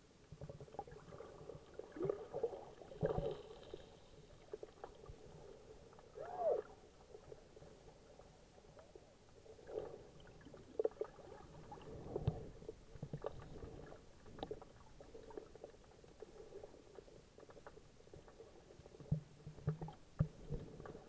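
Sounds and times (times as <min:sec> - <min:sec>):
underwater water gurgling: 0:00.0 - 0:21.0
underwater clicks and knocks: 0:17.4 - 0:21.0.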